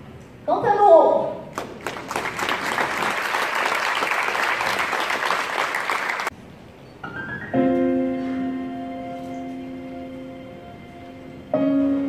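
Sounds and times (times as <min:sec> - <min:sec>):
audience applauding: 0:01.5 - 0:06.3
keyboard music with held notes: 0:07.1 - 0:12.0.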